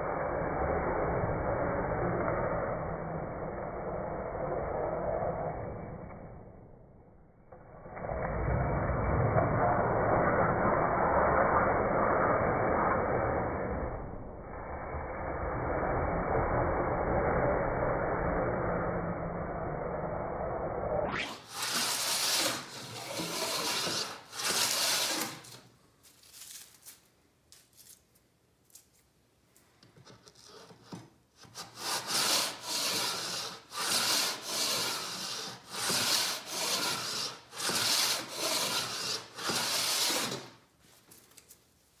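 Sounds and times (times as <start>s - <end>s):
plane shaving wood: 21.2s - 25.7s, 30.2s - 40.6s.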